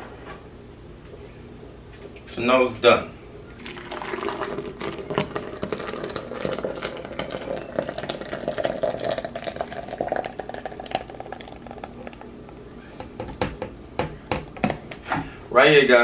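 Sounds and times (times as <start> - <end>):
thick liquid pouring into jar: 3.6 - 12.2.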